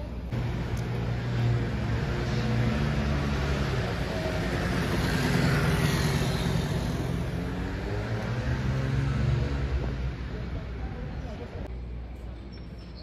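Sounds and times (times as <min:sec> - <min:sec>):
vehicle engine running: 0:00.3 - 0:11.6.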